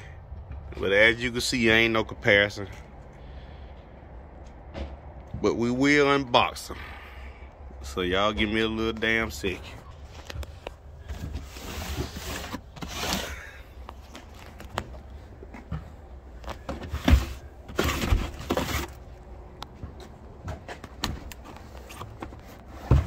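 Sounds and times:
cardboard boxes knocking and scuffing: 16.6 - 19.0, 22.0 - 23.0.

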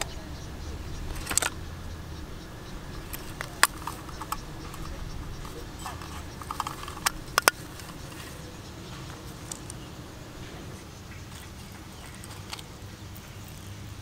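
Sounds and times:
low steady rumble: 0.0 - 14.0
metal tin clicking: 1.1 - 1.6, 3.0 - 9.9.

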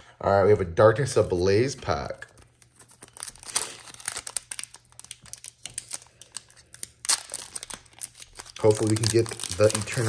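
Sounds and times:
foil wrapper crinkling and tearing: 2.2 - 10.0.

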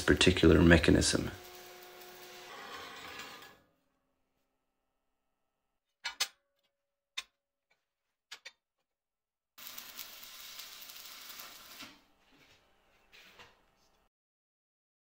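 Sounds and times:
steel plate scraping across table: 2.2 - 3.7.

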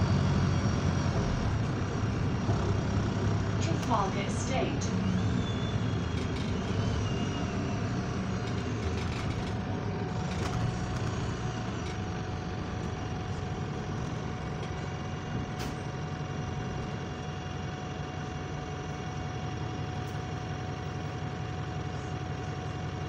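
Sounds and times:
bus engine and road noise: 0.0 - 23.0
thin steady whine: 3.6 - 9.5
sharp rattles: 8.0 - 13.2.

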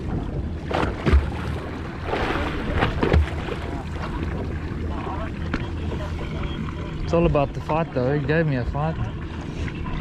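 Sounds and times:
boat engine rumble: 0.0 - 10.0.

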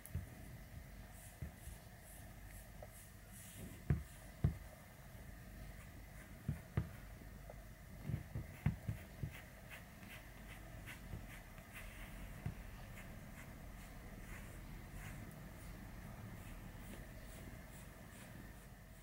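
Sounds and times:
brush strokes through cat fur: 1.0 - 4.7, 8.0 - 19.0.

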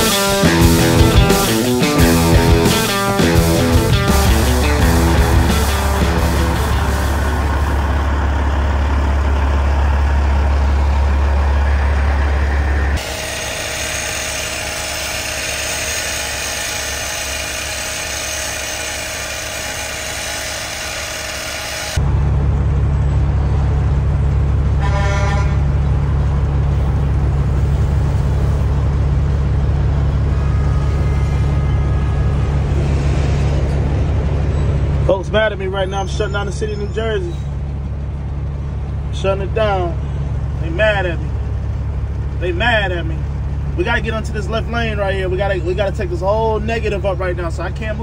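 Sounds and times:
vehicle humming: 0.0 - 48.0
car horn honk: 24.8 - 25.7.

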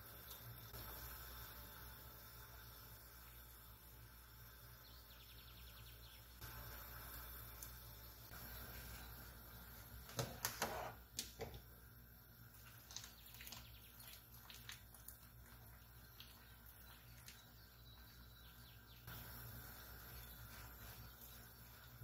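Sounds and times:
low steady hum: 0.0 - 22.0.

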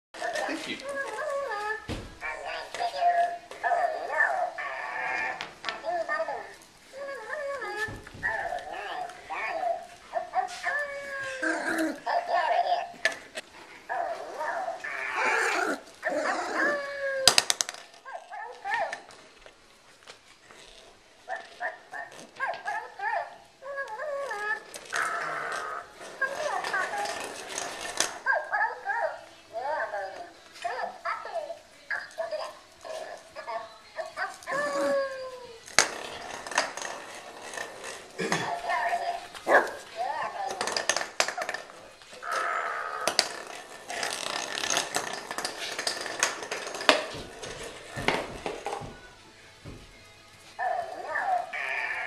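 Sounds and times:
puppies scrabbling on tile floor: 0.2 - 21.6, 32.0 - 51.4
dog yipping and whining: 3.0 - 12.9, 13.9 - 17.5, 38.7 - 40.7
plastic ball knocking and rolling: 7.2 - 9.8, 16.0 - 19.2, 24.3 - 28.3, 35.6 - 50.0.

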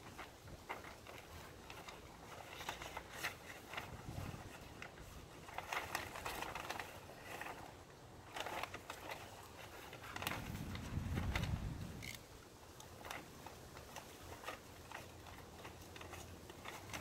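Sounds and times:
fabric rustling and crinkling: 0.0 - 17.0
low rumble: 10.3 - 12.1.

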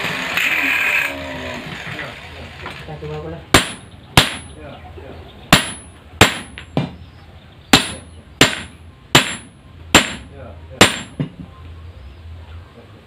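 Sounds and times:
hammer striking steel: 3.5 - 4.6, 5.5 - 7.0, 7.7 - 11.4.

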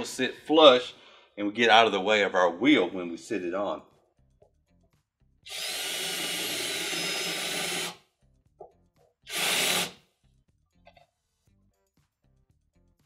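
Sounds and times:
cordless drill cutting metal: 5.5 - 8.0, 9.3 - 10.0.

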